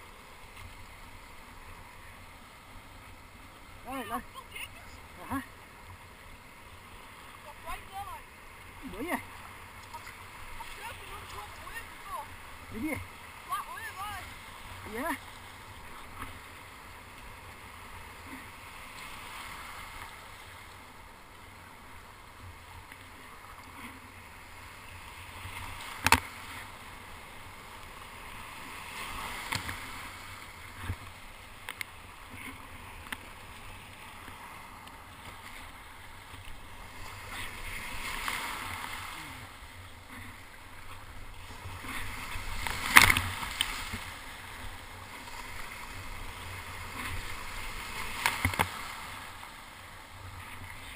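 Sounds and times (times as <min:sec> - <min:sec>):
paddle splashing: 0:00.0 - 0:50.9
surf foam rushing: 0:36.6 - 0:49.6.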